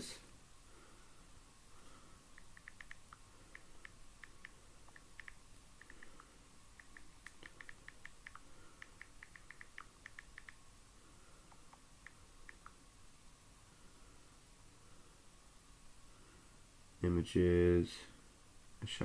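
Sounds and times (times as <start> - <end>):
typing on keyboard: 2.4 - 10.6.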